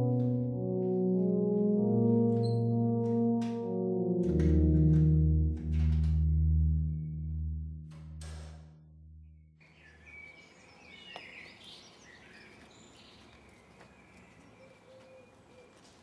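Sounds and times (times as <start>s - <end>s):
low musical drone: 0.0s - 9.6s
small birds chirping: 9.6s - 16.0s.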